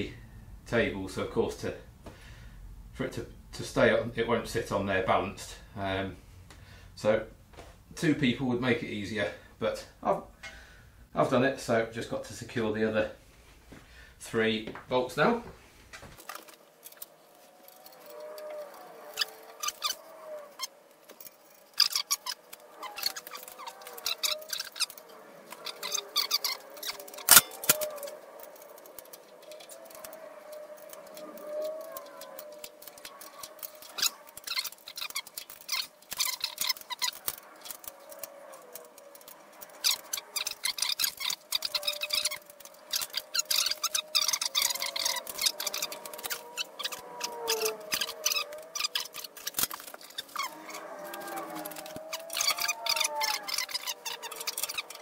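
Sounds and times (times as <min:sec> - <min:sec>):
metallic bolt clicks and clinks: 0:21.2 - 0:47.0.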